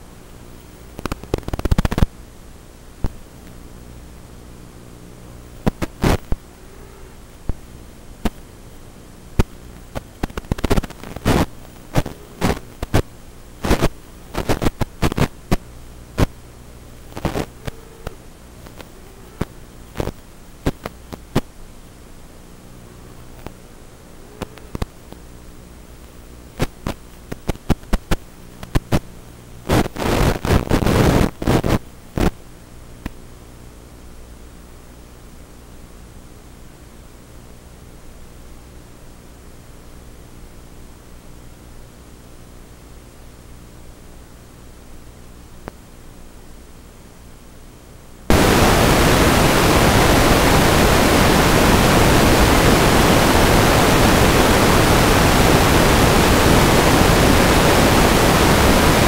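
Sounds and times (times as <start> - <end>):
radio static crackles: 0.0 - 33.2, 48.3 - 59.0
electrical hum: 0.0 - 59.0.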